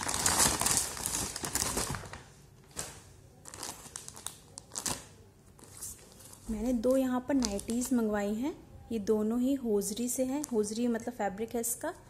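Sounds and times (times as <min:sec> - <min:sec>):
paper bag crumpling: 0:00.0 - 0:07.9
plastic packets crinkling: 0:00.0 - 0:08.0, 0:10.1 - 0:10.8.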